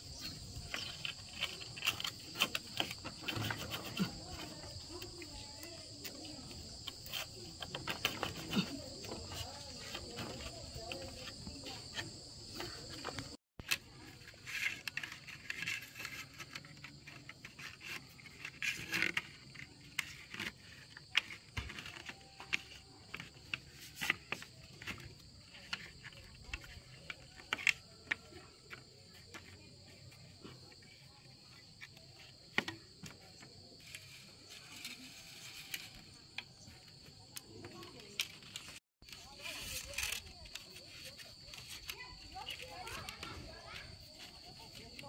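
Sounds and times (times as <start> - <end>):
high insect chirring: 0.0 - 13.4.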